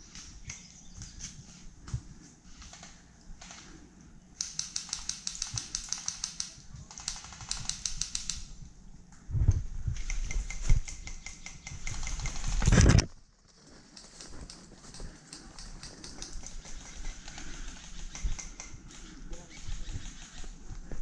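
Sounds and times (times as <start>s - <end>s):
airsoft gun rapid firing: 4.4s - 8.4s, 10.9s - 12.7s.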